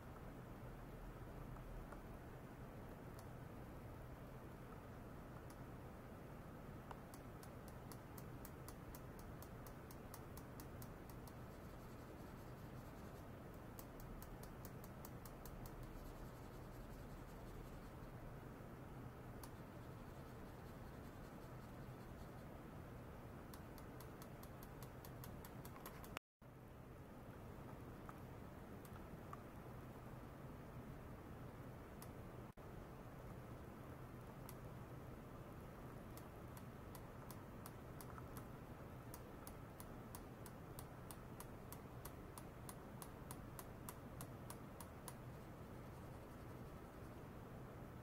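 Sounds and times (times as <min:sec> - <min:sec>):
faint low hum: 0:00.0 - 0:48.0
faint evenly spaced ticks: 0:02.9 - 0:05.8, 0:06.7 - 0:18.3, 0:19.2 - 0:26.2, 0:33.2 - 0:48.0.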